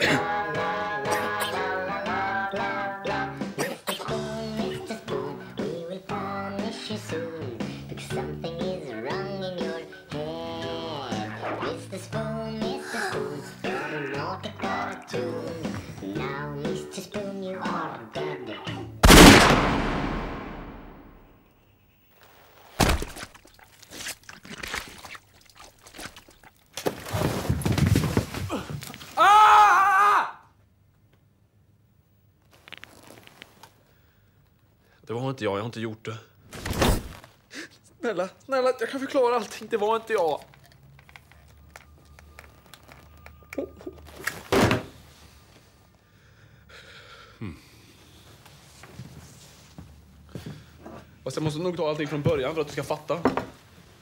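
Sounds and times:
pistol shot sound effect: 19.0 - 21.2
splattering sounds: 22.8 - 26.8.

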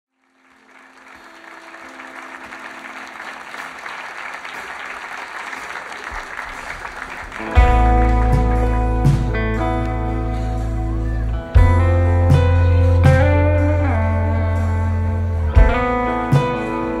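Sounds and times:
applause-like wash of noise: 0.1 - 8.9
music with deep bass: 7.5 - 17.0.

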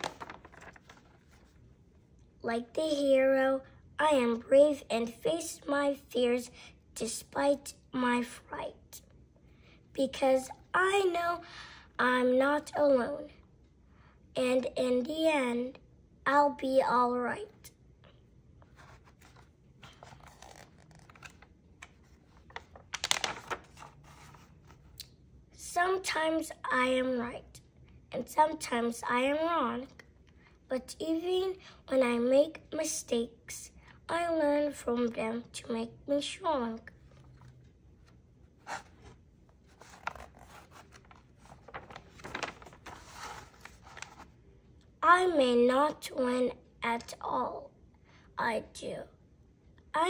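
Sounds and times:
paper page turning: 0.0 - 1.6, 18.6 - 25.0, 37.1 - 44.4
paper scrapes: 38.6 - 44.3.

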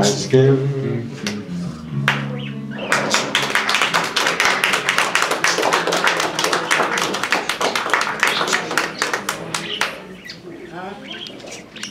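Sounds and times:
audience applauding: 2.0 - 10.3.

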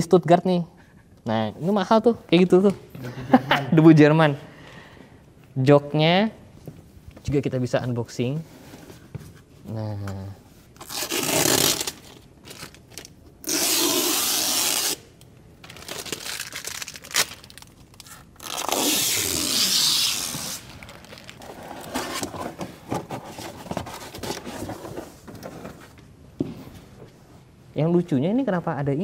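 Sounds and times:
plastic film tearing off: 10.8 - 22.3
wrapping sheet crumpling: 15.6 - 22.2.

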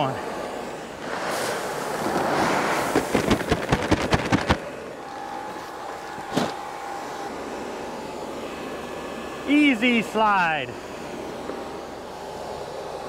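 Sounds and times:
paper bag snapping: 3.0 - 4.6.

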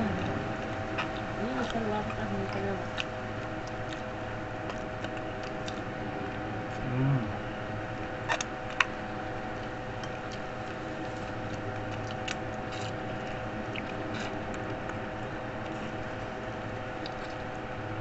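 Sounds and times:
chewing: 0.0 - 6.8, 10.0 - 15.0, 17.0 - 17.6
steady background hum: 0.0 - 18.0.

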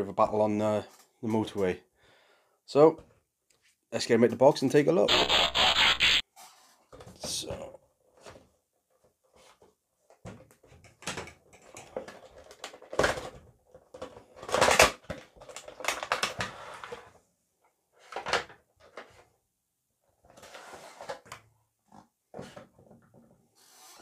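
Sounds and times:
cardboard scraping: 5.1 - 6.8.

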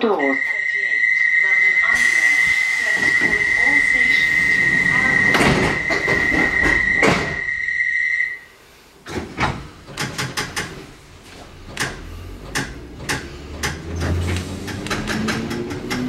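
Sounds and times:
steady high tone: 0.0 - 8.5
train low hum: 0.0 - 10.0, 10.6 - 16.0
train wheels clicking: 1.9 - 7.5, 9.0 - 16.0.

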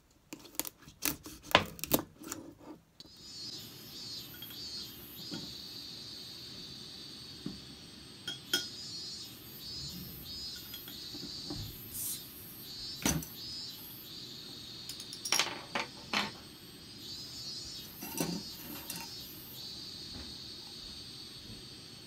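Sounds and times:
high insect-like chirring: 3.0 - 22.0
metal clinks on wooden table: 14.9 - 16.4.

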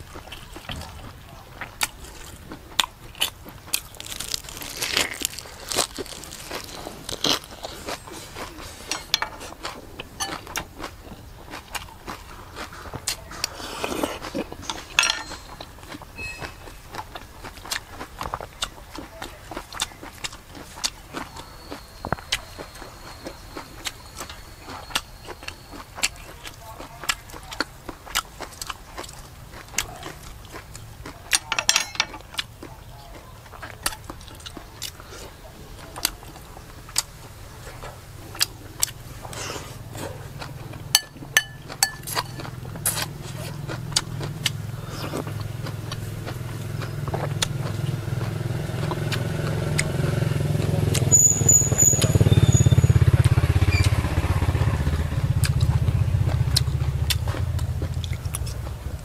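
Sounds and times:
vehicle engine rumbling: 0.0 - 19.5, 34.6 - 59.0
chewing raw vegetables: 0.0 - 59.0.

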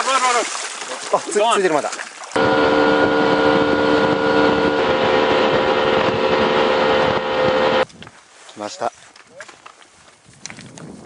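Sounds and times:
motorboat engine at speed: 2.4 - 7.8.

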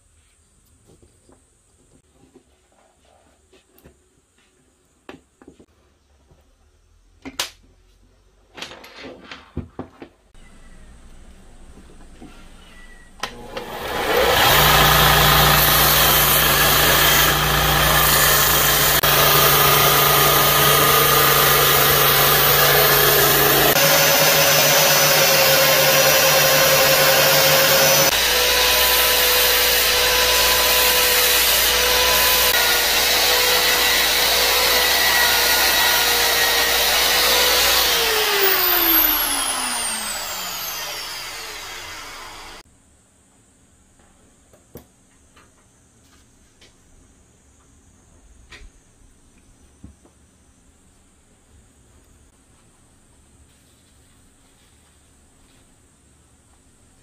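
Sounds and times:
motor spinning down: 13.2 - 42.6
belt grinder sanding wood: 13.3 - 42.6.

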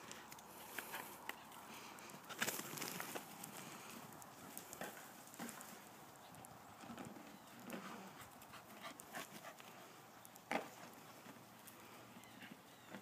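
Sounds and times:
dog panting: 8.0 - 10.0.

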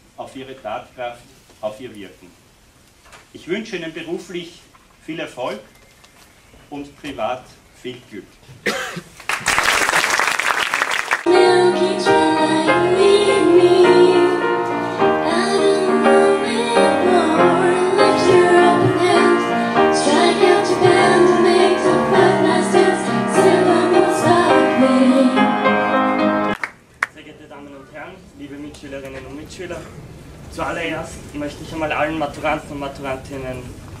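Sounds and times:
audience applause: 9.2 - 11.3, 26.5 - 27.1
women singing: 11.3 - 25.9
piano accompaniment: 11.3 - 26.7.

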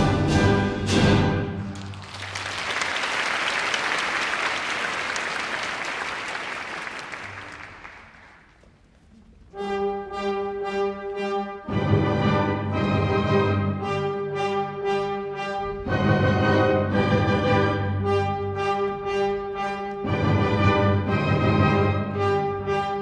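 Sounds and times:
orchestra playing: 0.0 - 2.8, 9.5 - 23.0
audience applauding: 1.7 - 8.6
brass chords: 9.5 - 23.0.

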